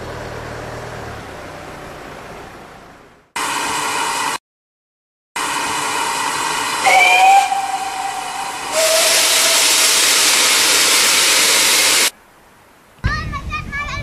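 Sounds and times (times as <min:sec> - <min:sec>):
steam whistle: 0:05.4 - 0:11.3
steam hissing: 0:05.4 - 0:12.1.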